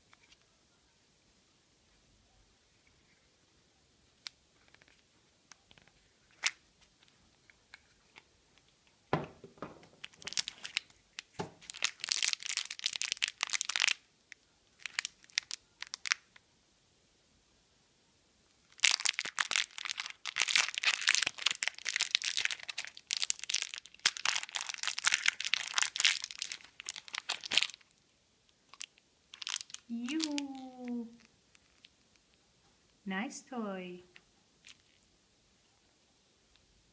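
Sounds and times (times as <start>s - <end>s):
plastic wrapper crinkling and tearing: 5.7s - 8.7s, 9.9s - 14.1s, 14.8s - 16.4s, 18.6s - 28.0s, 28.7s - 32.4s, 34.6s - 35.1s
plastic capsule clicks and knock: 9.2s - 10.3s.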